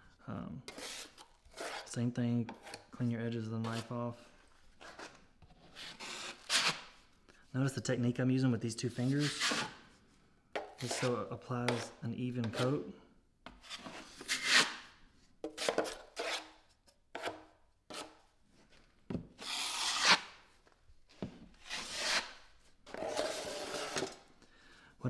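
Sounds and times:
taping knife scraping drywall: 0:00.7 - 0:03.0, 0:04.8 - 0:07.0, 0:08.9 - 0:09.8, 0:10.7 - 0:12.9, 0:13.5 - 0:18.3, 0:19.4 - 0:20.5, 0:21.6 - 0:24.2.

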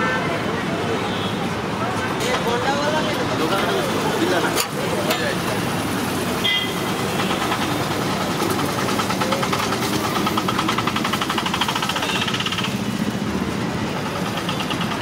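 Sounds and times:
street noise: 0:00.0 - 0:15.0
engine knocking rhythmically: 0:03.4 - 0:15.0.

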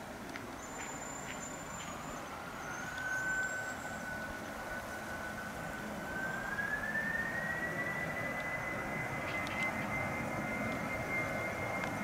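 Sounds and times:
jet engine whine: 0:00.0 - 0:12.0
jet engines roaring: 0:01.3 - 0:12.0.

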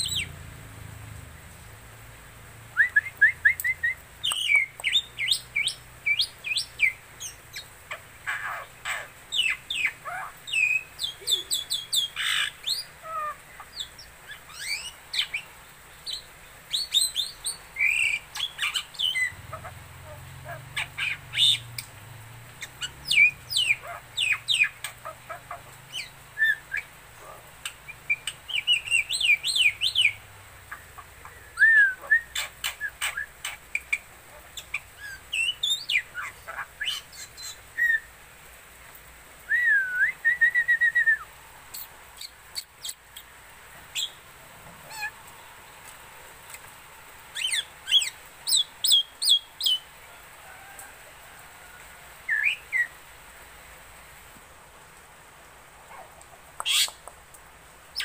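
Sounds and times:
bird singing chirps and whistles: 0:02.8 - 0:07.4, 0:31.5 - 0:33.3, 0:39.5 - 0:41.3.

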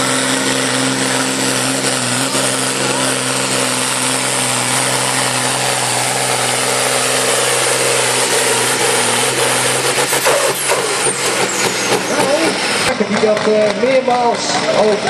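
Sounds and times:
diesel tractor engine running hard: 0:00.0 - 0:15.0.

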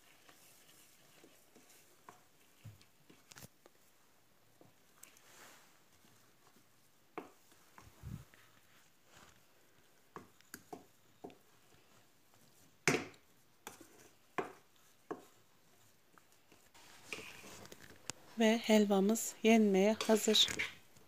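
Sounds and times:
wooden spoon scraping metal pot: 0:16.5 - 0:17.8, 0:19.8 - 0:20.8.

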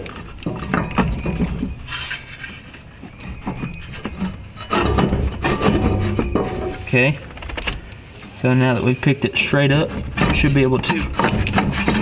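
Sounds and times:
metal parts scraping and knocking: 0:00.0 - 0:08.1, 0:09.8 - 0:12.0
metal clatter: 0:03.4 - 0:08.0, 0:09.9 - 0:12.0.

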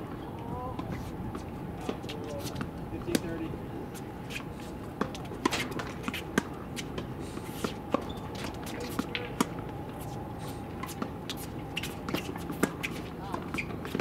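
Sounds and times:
rackets striking tennis balls: 0:00.8 - 0:03.5, 0:04.3 - 0:14.0
balls bouncing on hard court: 0:01.8 - 0:03.4, 0:10.8 - 0:14.0.

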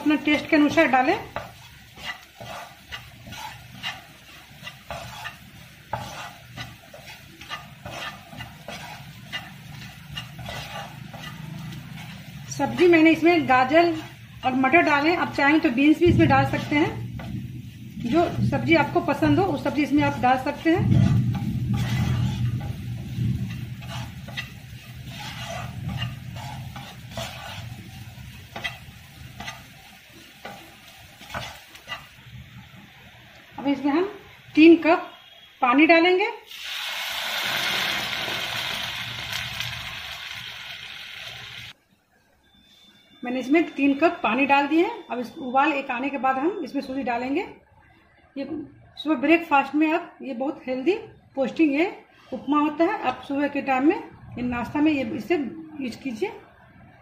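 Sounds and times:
wooden spatula scraping pan: 0:00.0 - 0:32.3
vegetables sizzling: 0:00.0 - 0:35.5, 0:36.4 - 0:41.8.

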